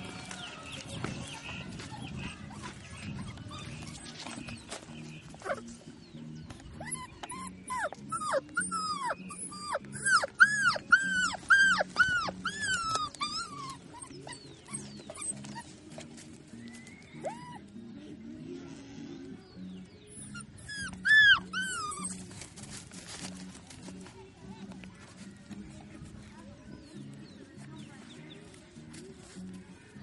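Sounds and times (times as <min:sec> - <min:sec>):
background music: 0:00.0 - 0:30.0
puppy yelping: 0:06.8 - 0:15.7, 0:20.2 - 0:22.3.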